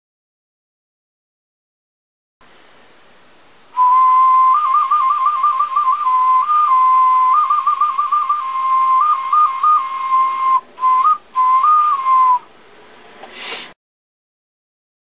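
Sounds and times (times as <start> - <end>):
warbling high whistle: 3.8 - 12.5.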